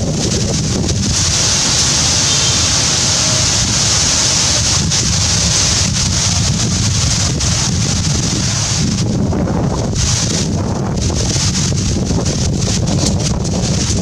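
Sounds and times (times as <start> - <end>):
airplane passing overhead: 0.0 - 10.0.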